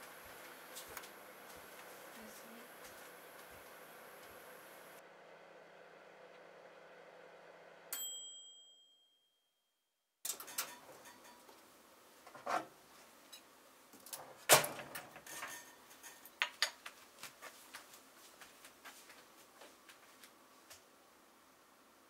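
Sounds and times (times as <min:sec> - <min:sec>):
bell-like ding: 0:07.9 - 0:09.6.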